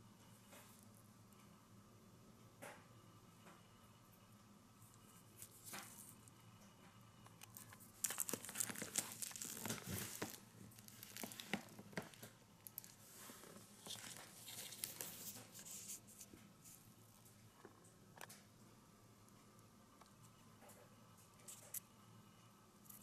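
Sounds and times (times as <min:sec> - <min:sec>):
paper wrappings crinkling: 0:07.3 - 0:16.2.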